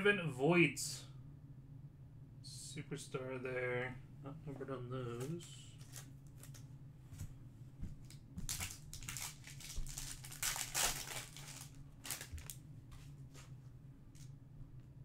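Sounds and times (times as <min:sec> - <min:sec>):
plastic wrapper crinkling: 0:08.4 - 0:12.6
blade slitting plastic wrapper: 0:08.5 - 0:12.6.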